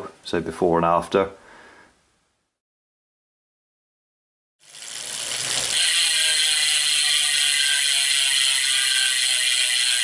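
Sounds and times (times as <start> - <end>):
bicycle ratchet hub clicking: 4.6 - 10.0.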